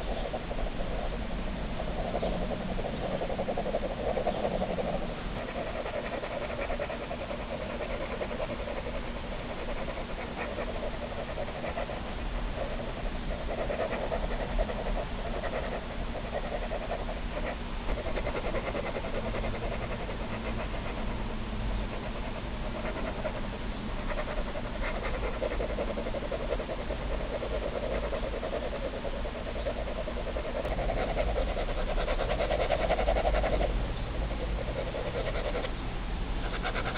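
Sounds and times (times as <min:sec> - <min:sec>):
pen scribbling on paper: 0:00.0 - 0:35.7, 0:36.4 - 0:36.9.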